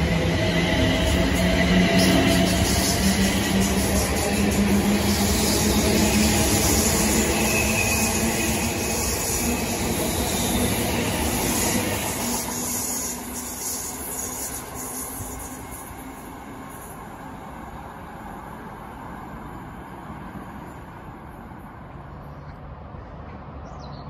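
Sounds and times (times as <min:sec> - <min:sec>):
train motor hum: 0:00.0 - 0:19.0
wheel-on-rail noise: 0:00.0 - 0:23.5.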